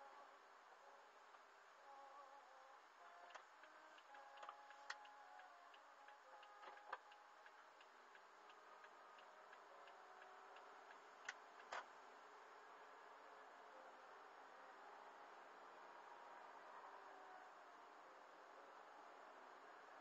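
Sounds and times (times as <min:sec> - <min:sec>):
turn signal ticking: 0:03.2 - 0:11.8.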